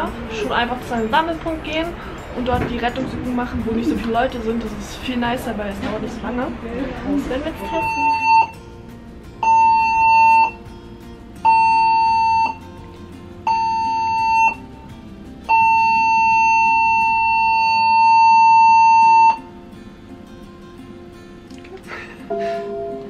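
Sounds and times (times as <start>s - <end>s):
electronic alarm tone blasts: 7.7s - 8.6s, 9.4s - 10.6s, 11.5s - 12.6s, 13.5s - 14.6s, 15.5s - 19.5s.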